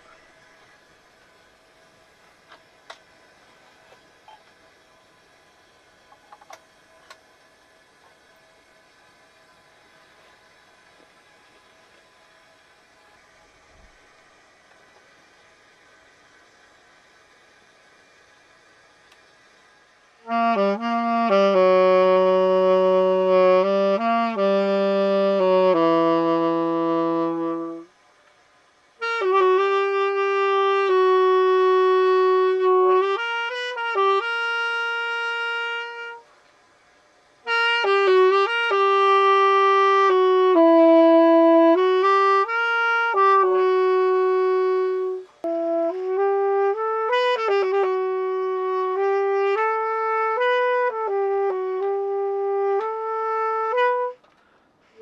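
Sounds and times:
solo saxophone melody: 20.2s - 28.0s, 28.9s - 36.4s, 37.4s - 55.0s.

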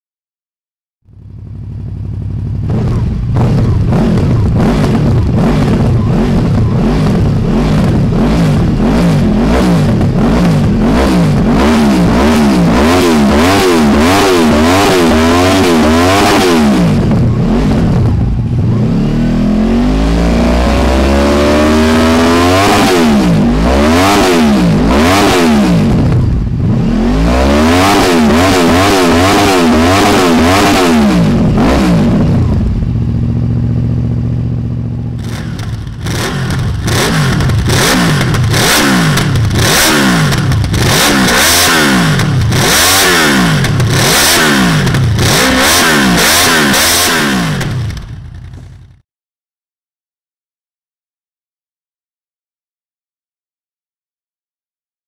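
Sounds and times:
motorcycle engine idling: 1.1s - 11.5s, 32.4s - 45.4s, 47.5s - 49.0s
motorcycle engine revving: 1.1s - 49.0s.

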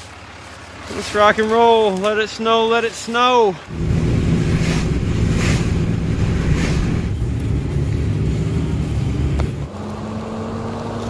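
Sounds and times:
diesel truck engine: 0.0s - 11.0s
tyre noise on wet road: 0.0s - 11.0s.

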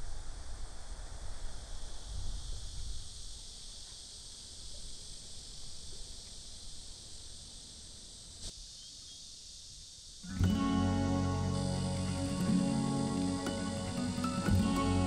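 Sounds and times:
wind rumble on microphone: 0.0s - 3.6s
high-pitched insect chorus: 0.0s - 15.0s.

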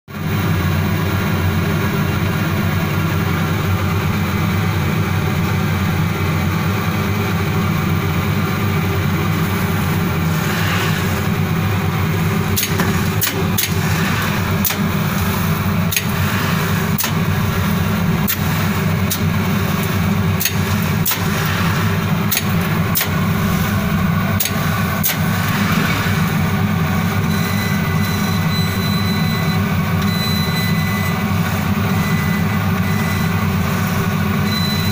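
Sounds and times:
laser cutting machine hum: 0.1s - 34.9s
rushing noise: 7.8s - 28.5s.

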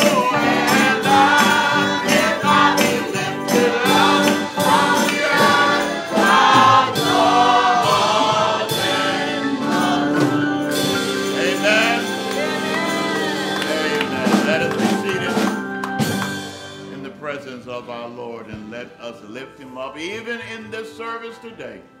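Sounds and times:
choir singing: 0.0s - 15.6s
rhythmic percussion beat: 0.0s - 17.0s
held chords: 0.0s - 21.4s.

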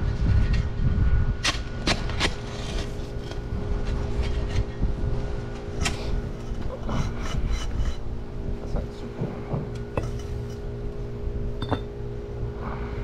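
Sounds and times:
steady low hum: 0.0s - 13.0s
paver scraping over gravel: 2.0s - 8.0s.

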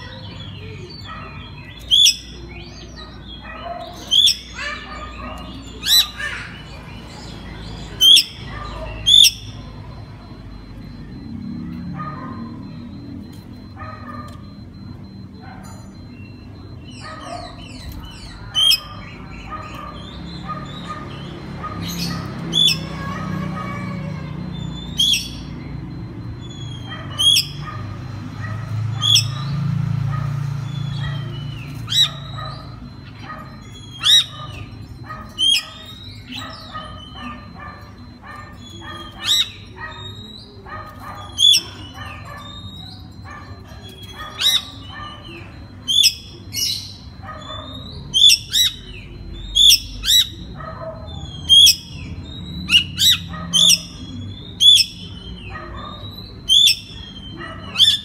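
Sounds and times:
bird singing sharp high calls: 0.0s - 10.4s, 16.0s - 27.8s, 28.7s - 29.8s.

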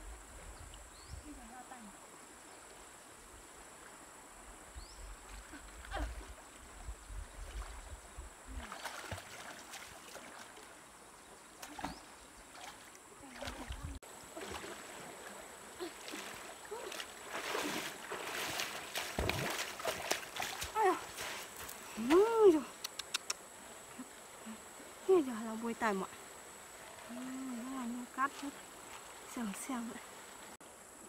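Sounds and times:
person wading through water: 8.5s - 10.8s, 11.5s - 22.4s.

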